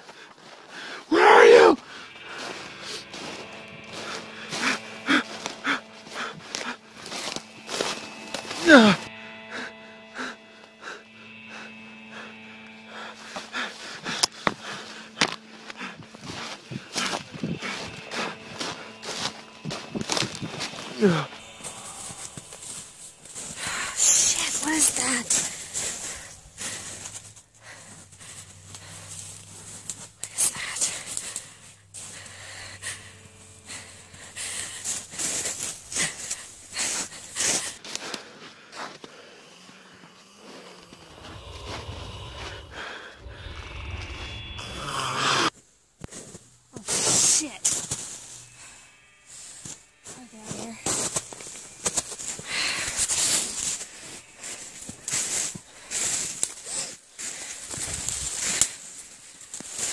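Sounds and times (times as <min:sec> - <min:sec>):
person breathing hard: 0:00.0 - 0:45.5, 0:52.2 - 0:58.6
faint steady hum: 0:00.0 - 0:59.9
footsteps crunching through brush: 0:01.8 - 0:08.8, 0:11.4 - 0:39.0, 0:47.7 - 0:59.9.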